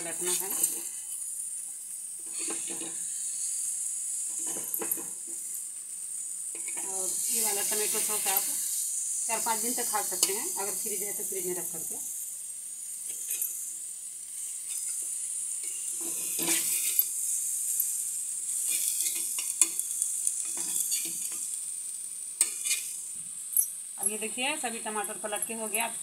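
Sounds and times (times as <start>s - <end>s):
tomatoes sizzling on a hot pan: 0.0s - 26.0s
utensil scraping and clicking on pan: 2.3s - 3.0s, 14.6s - 17.1s, 18.6s - 21.5s, 22.4s - 23.0s.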